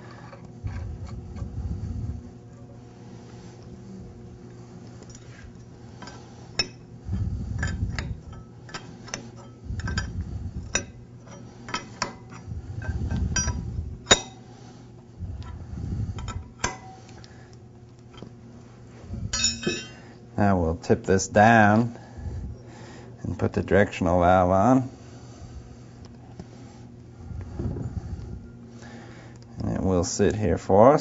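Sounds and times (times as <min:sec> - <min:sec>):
low rubbing handling noise: 0:00.0 - 0:17.1, 0:24.0 - 0:28.8
metal tools clinking: 0:19.4 - 0:20.1.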